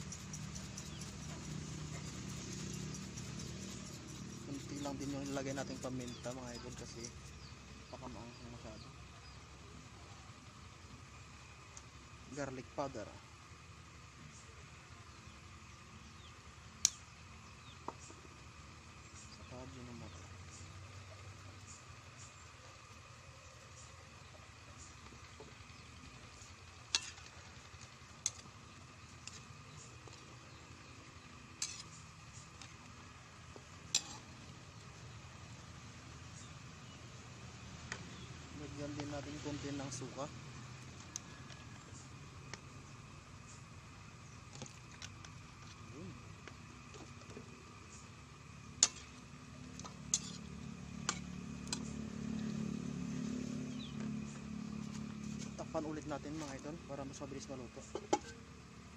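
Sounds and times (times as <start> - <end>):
metal spoon scraping a wok: 33.9 - 34.3, 50.1 - 51.8.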